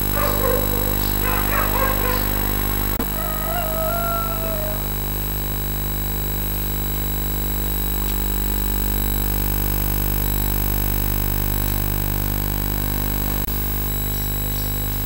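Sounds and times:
low sustained music drone: 0.0 - 5.6.

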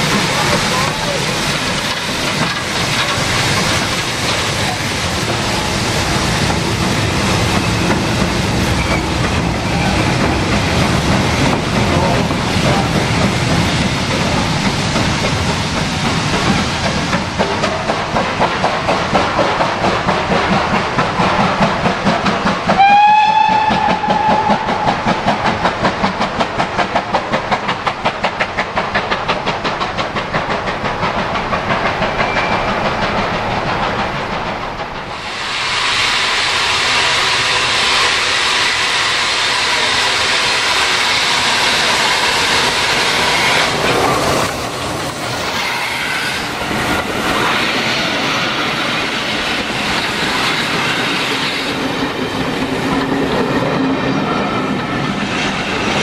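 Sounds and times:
steam locomotive exhaust beat: 0.0 - 56.0
train wheels clattering on rail: 0.0 - 56.0
steam whistle blast: 22.8 - 24.8.

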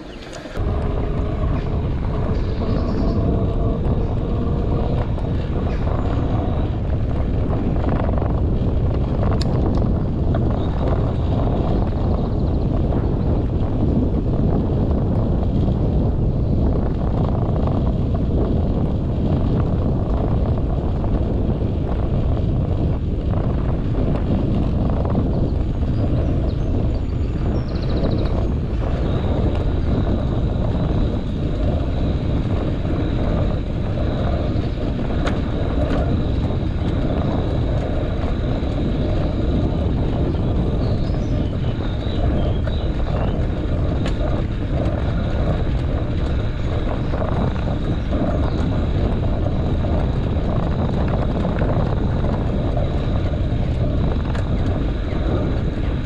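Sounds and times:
road rumble: 0.0 - 56.0
wind buffeting microphone: 0.0 - 56.0.

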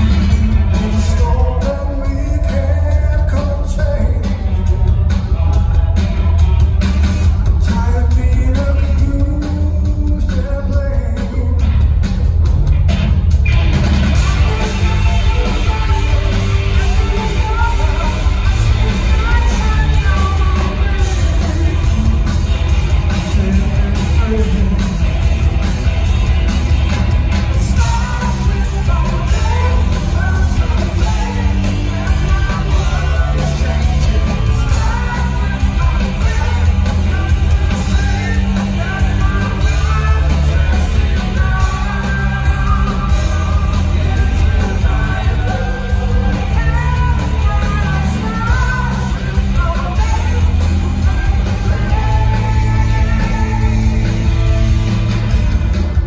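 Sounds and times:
person singing lead vocal: 0.0 - 6.5, 7.2 - 12.0, 14.1 - 25.8, 27.3 - 56.0
live rock band playing: 0.0 - 56.0.

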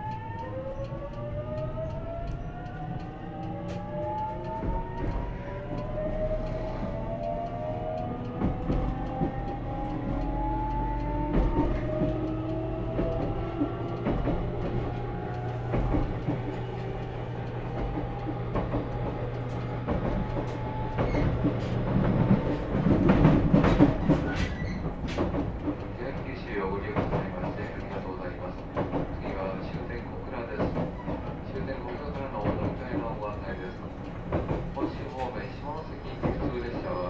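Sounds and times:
traction inverter whining: 0.0 - 37.0
wheels clattering over rail joints: 11.3 - 37.0.

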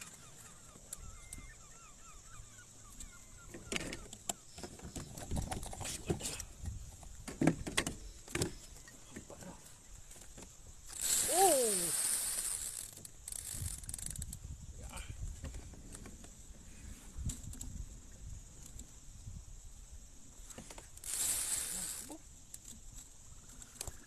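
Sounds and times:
fishing gear clicks and knocks: 3.0 - 14.4, 17.2 - 17.8
loud rushing hiss: 11.0 - 12.9, 21.0 - 22.1.

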